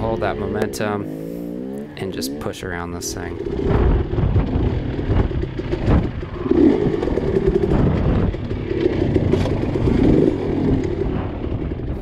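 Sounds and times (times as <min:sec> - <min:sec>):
dirt bike engine revving: 0:00.0 - 0:12.0
bike knocking on rock: 0:03.7 - 0:10.2.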